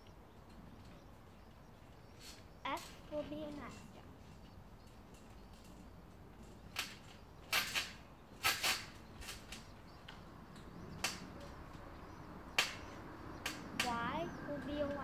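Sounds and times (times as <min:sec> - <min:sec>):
trampoline mat slaps and creaks: 0:06.6 - 0:09.8.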